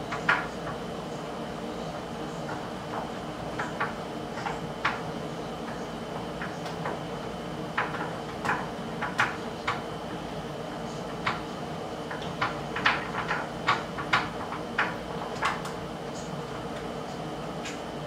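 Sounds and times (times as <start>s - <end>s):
steady background hum: 0.0s - 18.0s.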